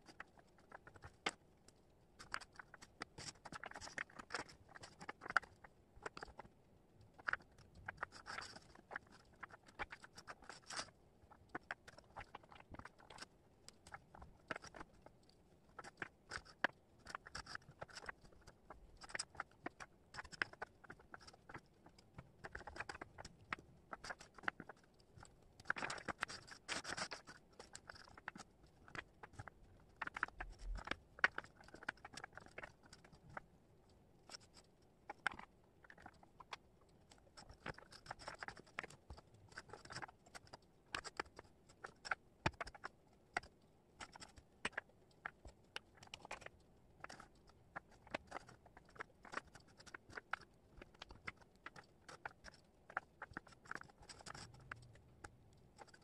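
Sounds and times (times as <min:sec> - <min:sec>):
wooden puzzle pieces clicking: 0:45.9 - 0:54.9.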